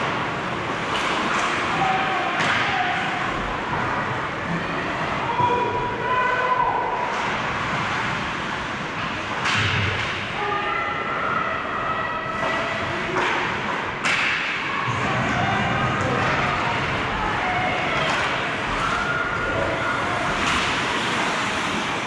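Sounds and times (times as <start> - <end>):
rink crowd din: 0.0 - 22.0
distant shouts: 1.6 - 3.6
hockey stick hitting puck: 12.4 - 14.6.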